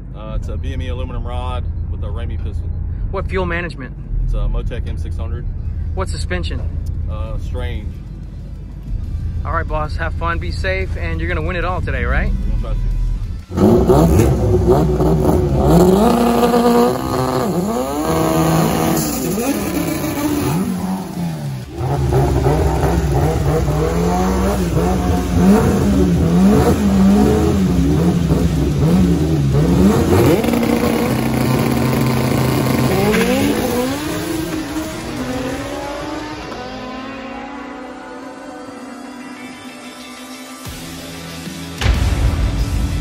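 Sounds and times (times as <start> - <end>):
car engine revving and accelerating: 12.3 - 40.5.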